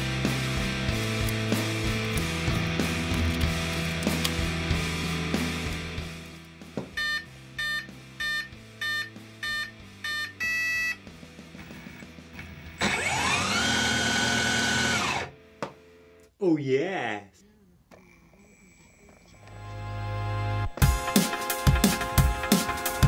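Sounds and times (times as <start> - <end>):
background music: 0.0 - 17.2, 19.4 - 23.0
short electronic beeps: 7.0 - 11.0
two-tone beep: 7.0 - 11.0
electric motor whining: 11.9 - 15.3.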